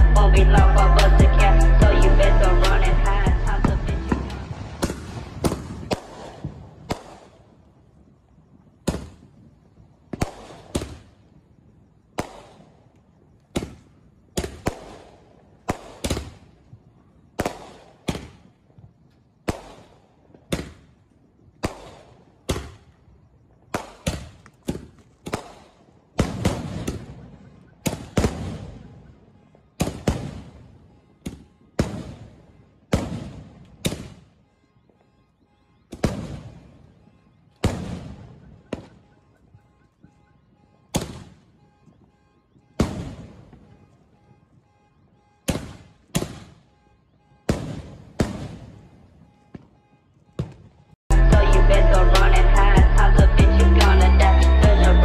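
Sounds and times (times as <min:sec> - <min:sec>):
firework bangs echoing: 0:03.6 - 0:07.6, 0:08.8 - 0:09.4, 0:10.0 - 0:11.2, 0:12.1 - 0:18.6, 0:19.4 - 0:23.0, 0:23.6 - 0:35.1, 0:35.8 - 0:50.8.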